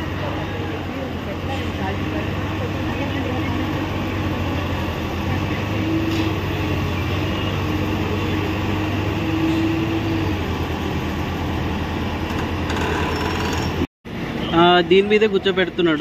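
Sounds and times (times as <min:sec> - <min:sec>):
excavator diesel engine running: 0:00.0 - 0:13.9
hydraulic arm whine: 0:05.7 - 0:13.9.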